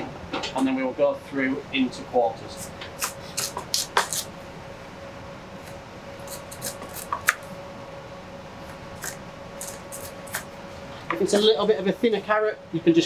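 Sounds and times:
knife cutting carrots: 2.6s - 4.3s, 6.2s - 7.4s, 9.0s - 10.5s.

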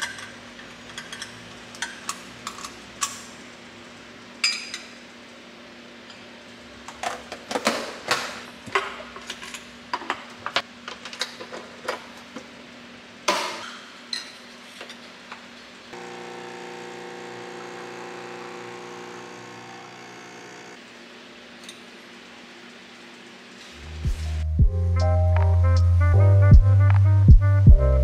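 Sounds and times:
coffee machine pump humming: 16.0s - 20.8s.

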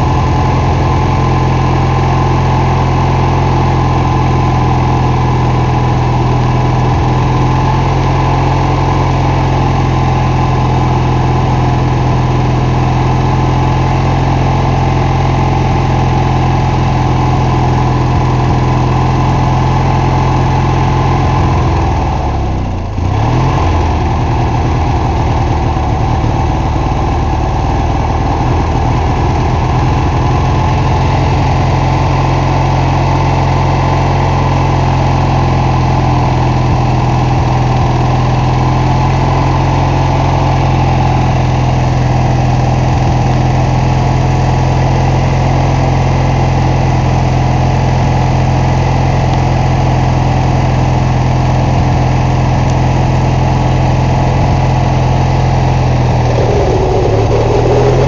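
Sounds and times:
lawn tractor engine running: 0.0s - 58.0s.

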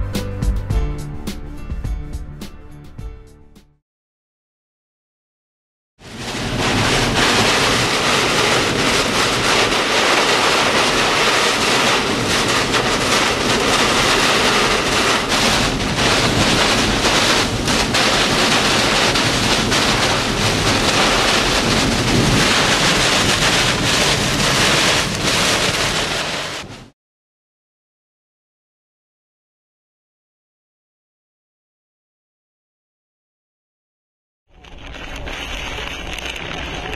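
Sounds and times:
strong wind blowing: 6.1s - 26.8s
wind buffeting microphone: 6.3s - 26.6s.

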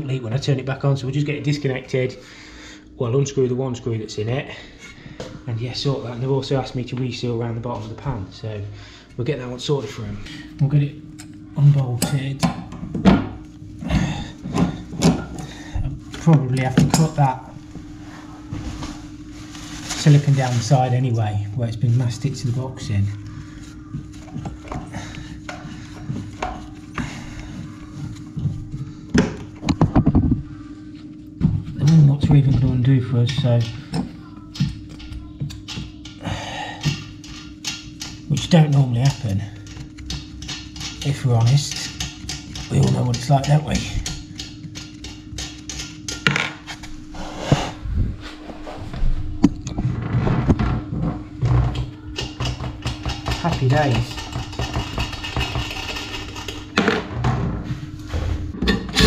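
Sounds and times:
tool clicking and clattering: 36.8s - 46.6s, 51.7s - 57.0s.

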